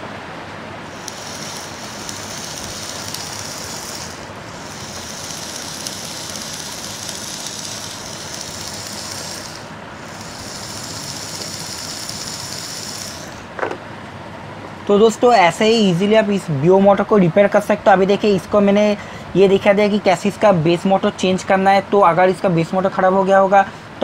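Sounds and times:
small gear motor whirring: 0.9 - 13.6.

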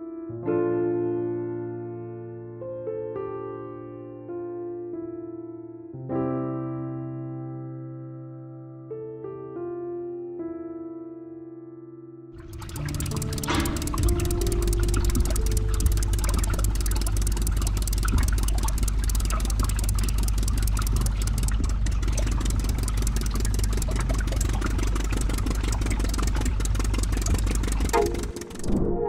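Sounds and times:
rapid clicking: 12.4 - 28.9
motor humming: 12.4 - 29.0.

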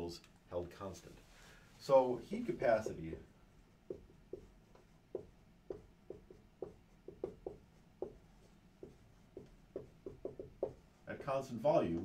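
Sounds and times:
marker writing on whiteboard: 2.4 - 12.0.

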